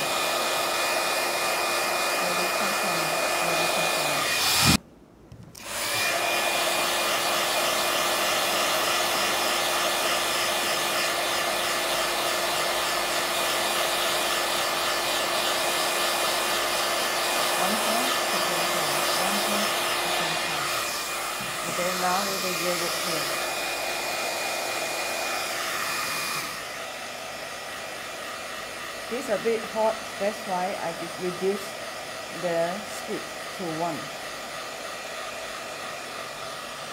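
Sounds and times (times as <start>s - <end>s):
fan whirring: 0.0s - 12.7s.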